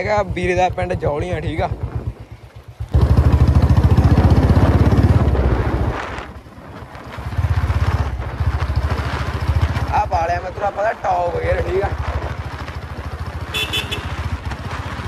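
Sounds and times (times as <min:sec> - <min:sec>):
wind on microphone: 0:00.8 - 0:12.7.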